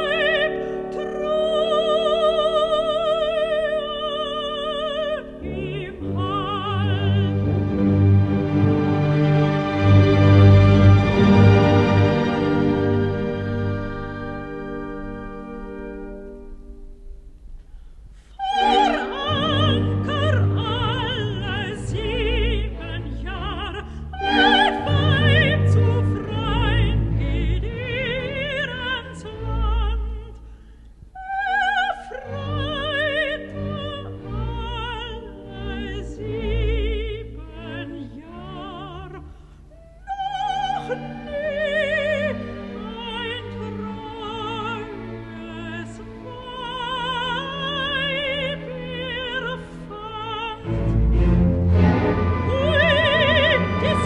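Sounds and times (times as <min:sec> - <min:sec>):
soprano singing with vibrato: 0:00.0 - 0:07.5, 0:18.3 - 0:30.4, 0:31.2 - 0:50.7, 0:52.1 - 0:54.0
symphony orchestra playing: 0:00.0 - 0:17.0, 0:18.4 - 0:30.3, 0:31.7 - 0:54.0.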